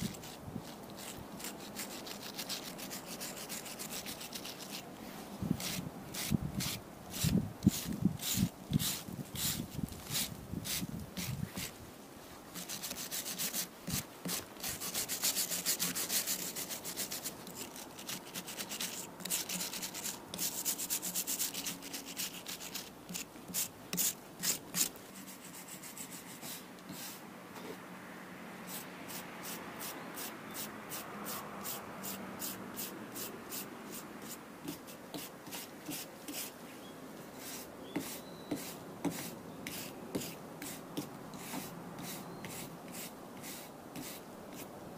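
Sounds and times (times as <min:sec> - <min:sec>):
wire brush scrubbing concrete: 0:00.0 - 0:04.9, 0:05.6 - 0:11.8, 0:12.5 - 0:27.2.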